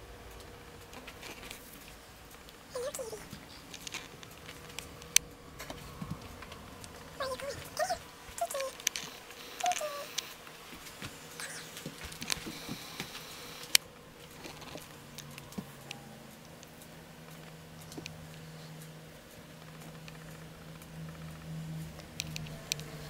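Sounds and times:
faint low hum: 0.0s - 23.0s.

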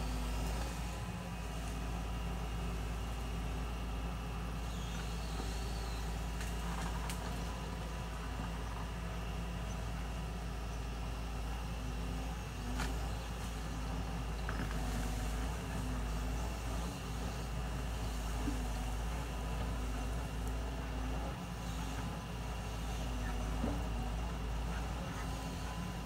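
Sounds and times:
excavator diesel engine rumbling: 0.0s - 26.0s.

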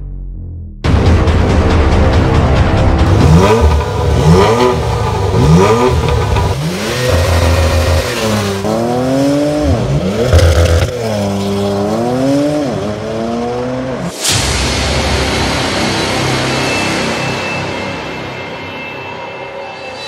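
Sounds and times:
car engine revving: 3.0s - 14.3s.

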